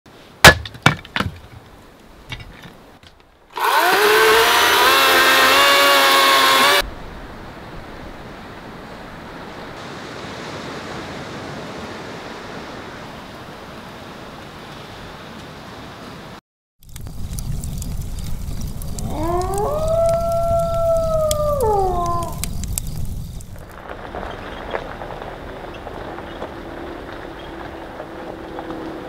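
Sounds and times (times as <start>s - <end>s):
battery chainsaw whining: 3.5s - 6.8s.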